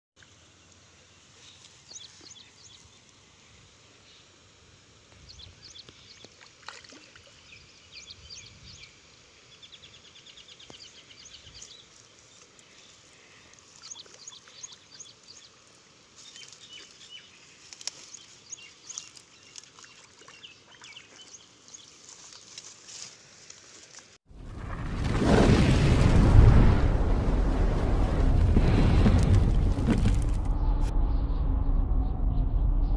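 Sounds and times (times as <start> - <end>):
faint outdoor background noise: 0.2 - 24.2
loud rising rush of noise: 26.1 - 32.9.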